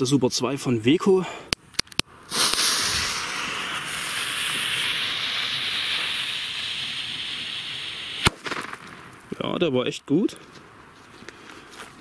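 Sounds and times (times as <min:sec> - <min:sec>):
firecracker fuse hissing: 0:02.2 - 0:09.2.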